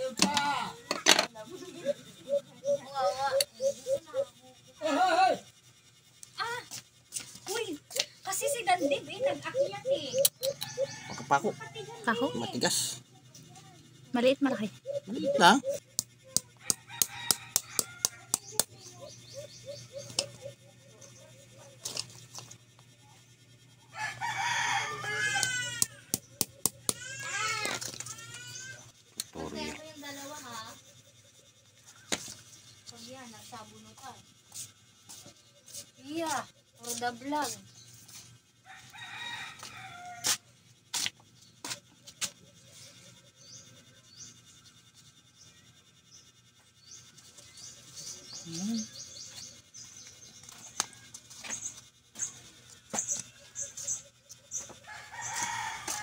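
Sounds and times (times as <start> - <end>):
small birds chirping: 0.0 - 56.0
rooster crowing: 10.4 - 12.3, 16.6 - 18.5, 23.9 - 28.5, 38.6 - 40.5, 54.7 - 56.0.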